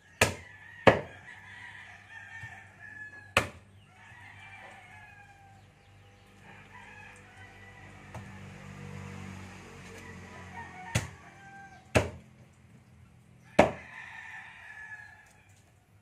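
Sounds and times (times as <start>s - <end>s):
rooster crowing: 0.0s - 12.2s, 13.4s - 15.6s
meat cleaver chopping: 11.9s - 12.2s.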